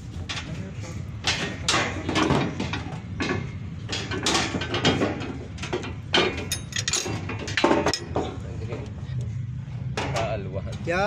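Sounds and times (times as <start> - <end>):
wire fan guard knocking and rattling: 1.2 - 8.4.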